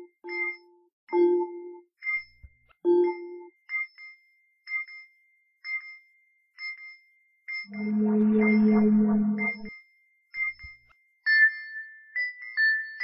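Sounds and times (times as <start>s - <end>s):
metallic chime notes: 7.7s - 9.7s
thin high tone: 7.7s - 9.7s.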